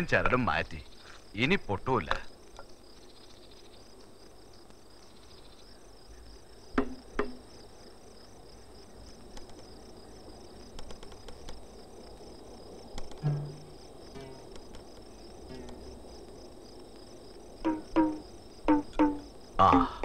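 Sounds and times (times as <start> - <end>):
crickets chirping: 0.0 - 20.0
sharp knocks: 6.8 - 7.4, 13.0 - 14.7, 17.6 - 19.9.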